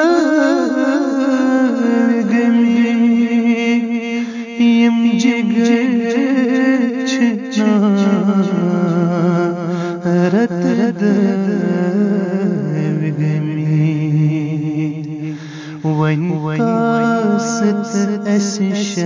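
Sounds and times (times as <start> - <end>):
man singing slow devotional song: 0.0 - 19.0.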